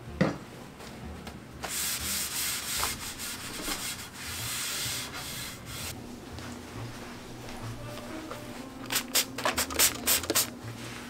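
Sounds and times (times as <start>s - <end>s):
paper towel wiping floor tile: 1.6s - 6.0s.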